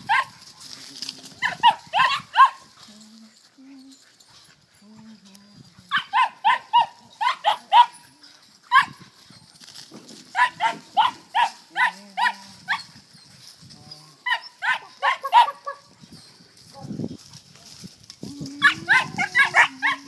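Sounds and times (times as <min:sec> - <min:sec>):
puppy barking high-pitched: 0:00.0 - 0:00.4, 0:01.4 - 0:02.7, 0:05.9 - 0:08.0, 0:08.7 - 0:09.0, 0:10.4 - 0:12.8, 0:14.3 - 0:15.8, 0:18.6 - 0:20.0.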